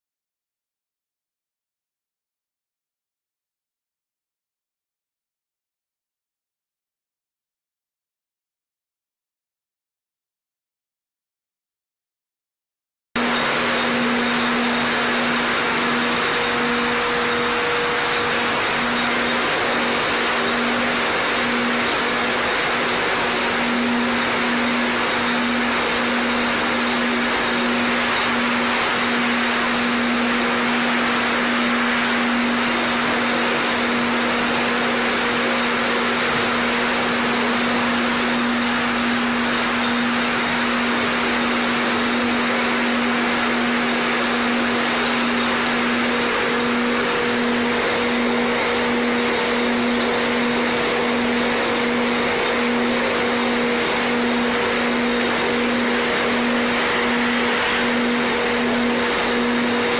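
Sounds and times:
bottle labelling machine drone: 0:13.2 - 0:59.9.

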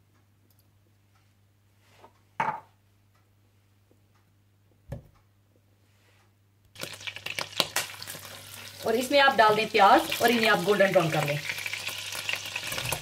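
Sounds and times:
cookware thud: 0:02.4 - 0:02.7.

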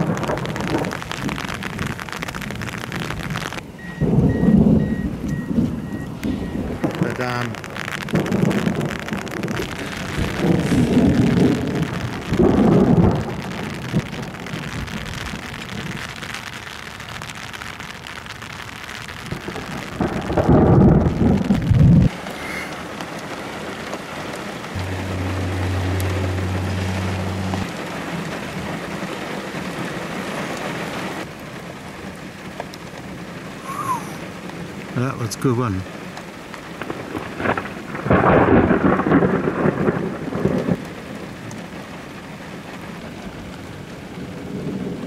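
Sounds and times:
low rumbles of thunder: 0:00.0 - 0:02.0, 0:02.6 - 0:16.0, 0:19.3 - 0:22.1, 0:24.7 - 0:28.6, 0:36.8 - 0:41.4, 0:43.7 - 0:45.0
rain falling: 0:00.0 - 0:45.0.

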